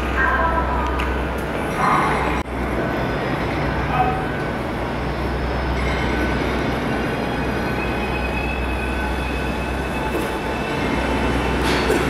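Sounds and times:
electric train rumbling: 0.0s - 12.0s
high whining tones: 2.2s - 11.8s.

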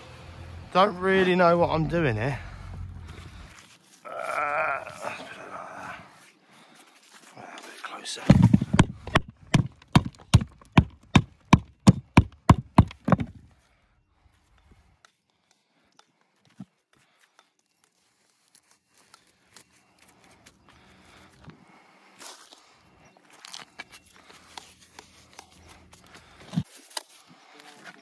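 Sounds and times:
hammer on stone: 8.3s - 13.0s.

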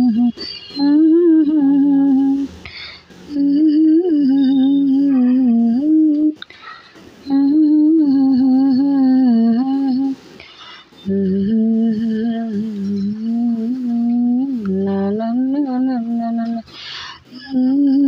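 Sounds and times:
woman humming: 0.0s - 6.5s, 7.2s - 10.2s, 11.0s - 16.7s, 17.3s - 18.0s
breaths: 2.6s - 3.2s, 6.5s - 7.2s, 10.2s - 11.0s, 16.7s - 17.3s.

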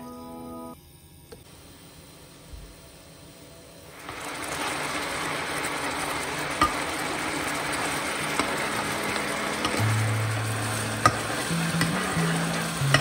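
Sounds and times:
broth boiling in a frying pan: 1.5s - 13.0s.

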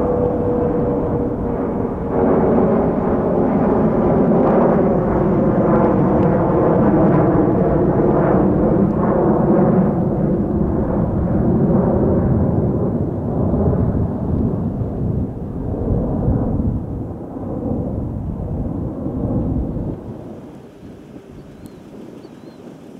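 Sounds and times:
droning tones: 0.0s - 5.1s
jet engines rumbling: 0.0s - 22.9s.

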